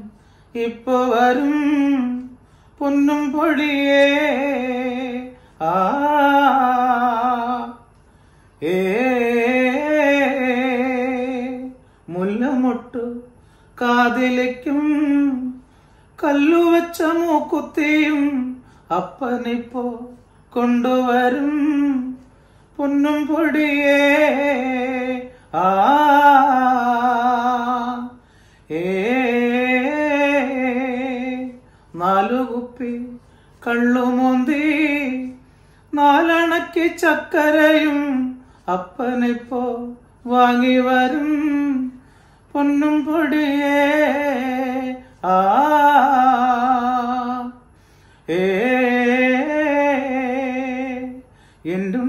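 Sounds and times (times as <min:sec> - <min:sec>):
singer breathing: 0:00.0 - 0:00.6, 0:02.3 - 0:02.8, 0:07.8 - 0:08.6, 0:13.3 - 0:13.8, 0:15.5 - 0:16.2, 0:18.5 - 0:18.9, 0:22.2 - 0:22.8, 0:28.1 - 0:28.8, 0:31.5 - 0:32.0, 0:33.1 - 0:33.7, 0:35.4 - 0:36.0, 0:38.4 - 0:38.7, 0:41.9 - 0:42.6, 0:47.6 - 0:48.3, 0:51.2 - 0:51.7
man singing unaccompanied: 0:00.0 - 0:08.0, 0:08.6 - 0:52.0.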